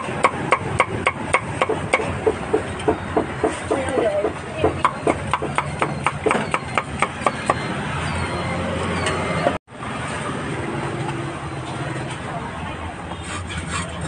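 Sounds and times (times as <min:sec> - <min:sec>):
cleaver chopping meat on block: 0:00.0 - 0:03.6.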